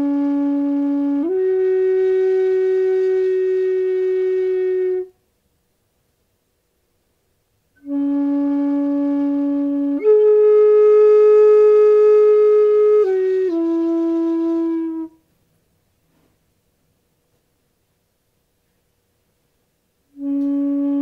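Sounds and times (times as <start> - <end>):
bamboo flute long notes: 0.0 - 5.2, 7.8 - 15.2, 20.1 - 21.0.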